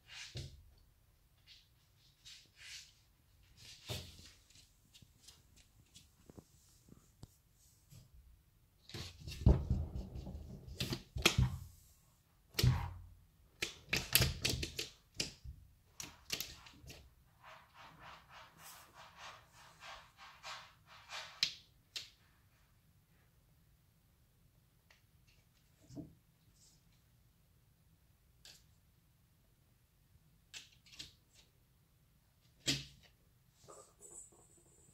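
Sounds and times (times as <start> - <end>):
claw clicks and scratching: 13.6 - 22.2.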